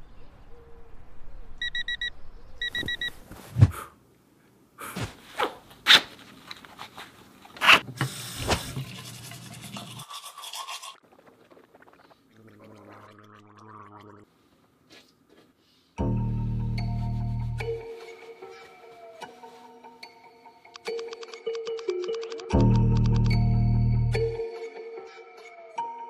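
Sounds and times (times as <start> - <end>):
alarm beeping: 1.6 - 3.1
person gargling: 11.0 - 14.3.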